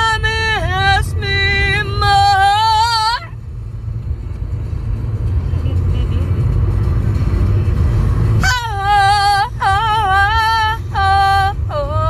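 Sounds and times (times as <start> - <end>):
woman singing unaccompanied: 0.0 - 3.3, 8.4 - 12.0
road rumble inside car: 0.0 - 12.0.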